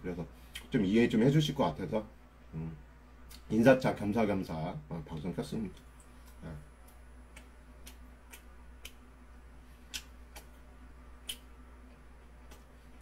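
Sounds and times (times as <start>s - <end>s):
steady low hum: 0.0s - 13.0s
soft sharp clicks: 5.7s - 9.1s.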